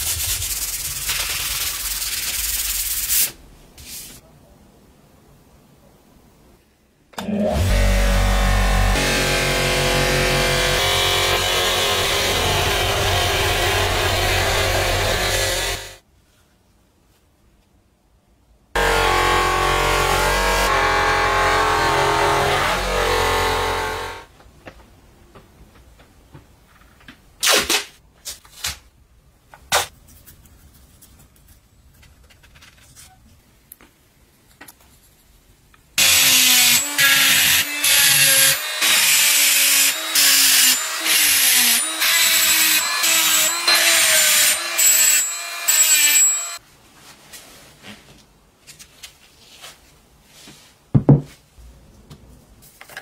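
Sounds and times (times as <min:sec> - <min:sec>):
rotary tool grinding steel: 0:07.6 - 0:16.0, 0:36.0 - 0:46.6
thump: 0:51.0 - 0:51.4.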